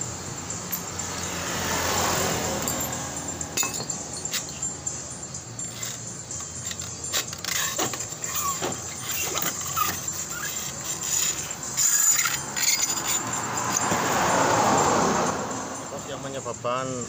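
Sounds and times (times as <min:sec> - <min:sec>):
metal clinks and scraping: 0:00.0 - 0:17.0
short squeaks: 0:05.6 - 0:13.9.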